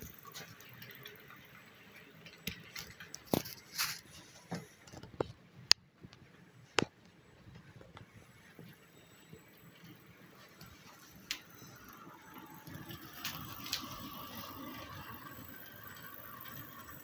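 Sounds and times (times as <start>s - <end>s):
brief rustle: 2.6s - 5.2s.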